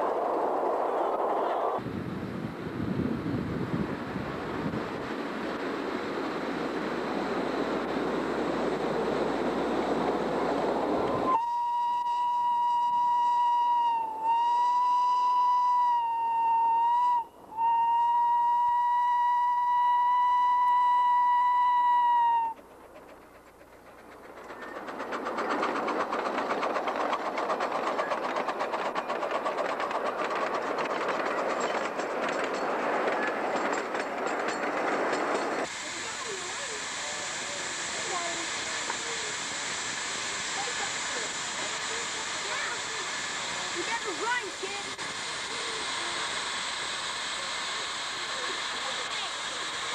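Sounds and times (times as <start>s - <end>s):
rushing noise: 0.0s - 11.4s
train coaches rattling on rails: 3.6s - 11.4s, 21.5s - 49.9s
miniature train whistle: 11.2s - 22.6s.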